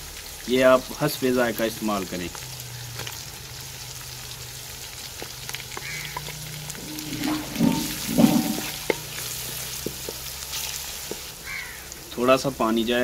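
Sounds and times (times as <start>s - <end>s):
masala sizzling in hot oil: 0.0s - 13.0s
wooden spatula stirring: 6.7s - 10.3s.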